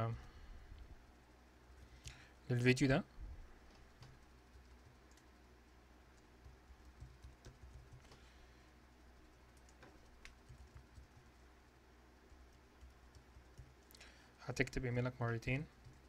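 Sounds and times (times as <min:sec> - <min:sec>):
faint keyboard typing: 0:03.6 - 0:16.0.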